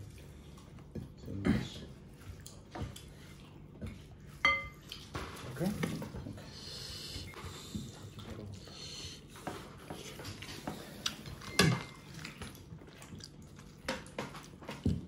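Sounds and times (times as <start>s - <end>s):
dishes and utensils clinking: 4.4s - 6.0s, 11.4s - 12.2s.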